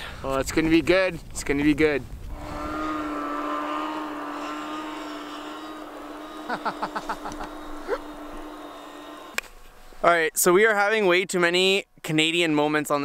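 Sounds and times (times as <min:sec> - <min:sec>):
snowmobile engine running: 0:02.3 - 0:10.5.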